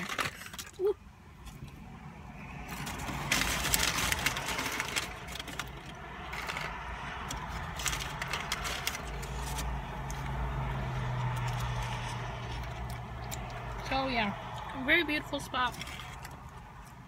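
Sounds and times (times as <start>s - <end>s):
paper packaging crinkling: 2.7s - 10.3s.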